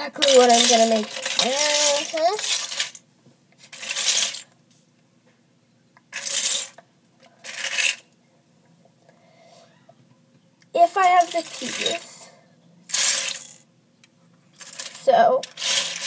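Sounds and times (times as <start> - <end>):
plastic bricks rattling: 0.2 - 3.0, 3.6 - 4.5, 6.1 - 6.8, 10.8 - 12.2, 14.6 - 16.0.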